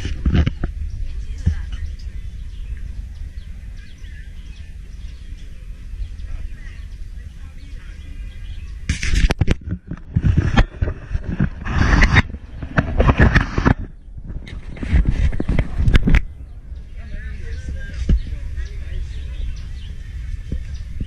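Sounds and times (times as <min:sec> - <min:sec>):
wind rumble on microphone: 0:00.0 - 0:21.0
faint bird chirps: 0:00.7 - 0:09.2
camera handling bumps and rustles: 0:08.9 - 0:16.3.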